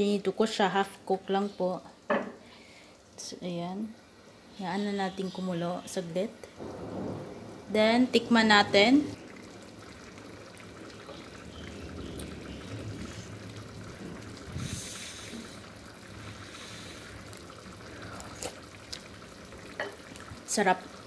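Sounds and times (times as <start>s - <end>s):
curry simmering in frying pan: 0.1s - 21.0s.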